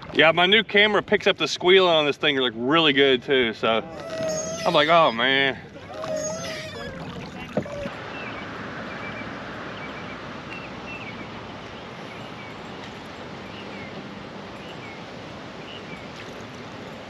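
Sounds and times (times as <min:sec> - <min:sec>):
water noise: 0:00.0 - 0:17.0
wind: 0:00.0 - 0:17.0.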